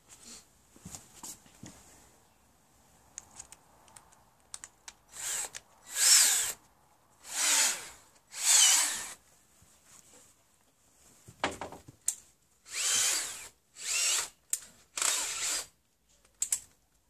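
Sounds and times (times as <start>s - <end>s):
cordless drill whine: 5.1s - 6.6s, 7.2s - 9.2s, 12.7s - 14.3s, 14.9s - 15.7s.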